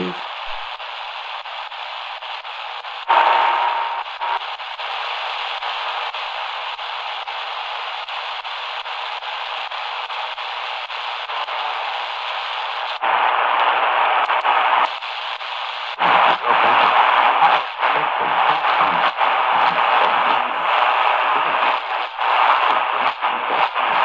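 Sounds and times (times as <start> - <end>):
radio station signal: 0.0 - 0.8, 3.0 - 6.1, 12.8 - 24.0
radio static hissing: 0.0 - 24.0.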